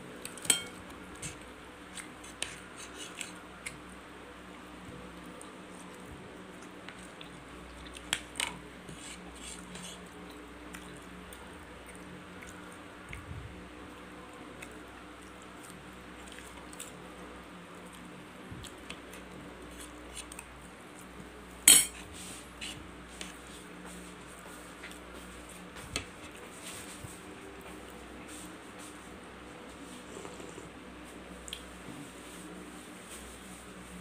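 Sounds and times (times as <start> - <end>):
soft chewing: 0.2 - 32.6
cutlery scraping on a plate: 0.4 - 3.3, 21.7 - 22.8.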